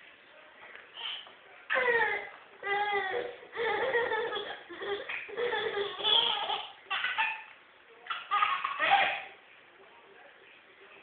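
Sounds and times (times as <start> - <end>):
baby laughing hard: 3.1 - 7.5, 8.1 - 9.3.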